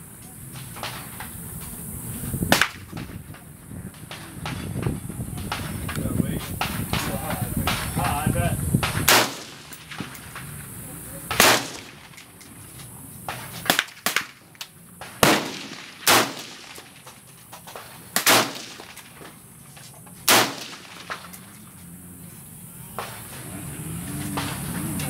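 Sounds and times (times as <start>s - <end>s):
rifle shots: 2.5s - 3.1s, 8.8s - 12.6s, 13.3s - 19.6s, 20.2s - 21.6s, 24.2s - 24.8s.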